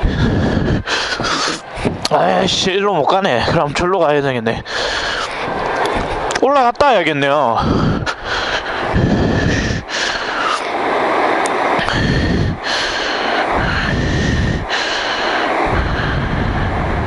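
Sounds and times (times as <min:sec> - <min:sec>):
person breathing hard: 0:00.0 - 0:02.1, 0:04.6 - 0:06.3, 0:07.6 - 0:17.0.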